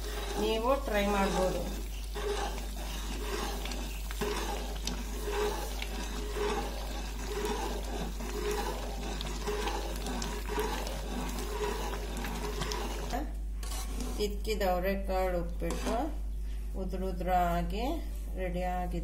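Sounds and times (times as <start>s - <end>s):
boiling water bubbling: 0.0s - 14.2s
metal spoon stirring: 0.0s - 14.4s, 15.6s - 16.1s.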